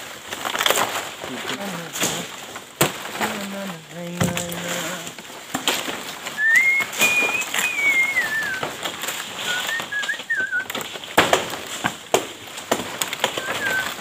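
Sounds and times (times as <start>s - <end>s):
palm fronds rustling and crackling: 0.0s - 14.0s
warbling whistle: 6.4s - 8.6s
wavering whistle: 6.4s - 8.6s, 9.4s - 10.7s, 13.4s - 13.9s.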